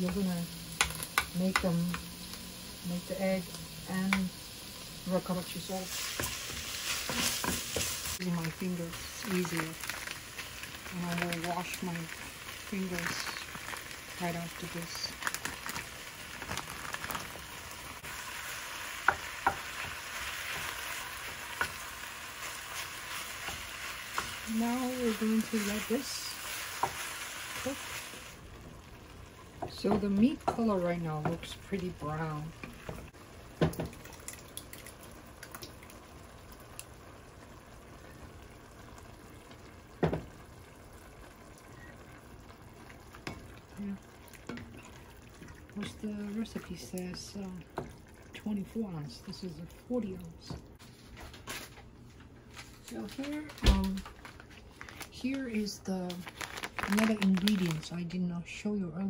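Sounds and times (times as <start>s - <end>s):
meat and onion sizzling in oil: 0.0s - 49.0s
sauce pouring and plopping: 32.8s - 45.8s.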